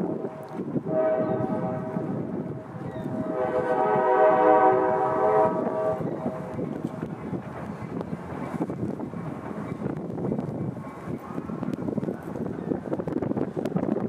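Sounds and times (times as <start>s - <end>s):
wind rumble on microphone: 0.0s - 14.0s
locomotive air horn blasts: 0.9s - 6.6s.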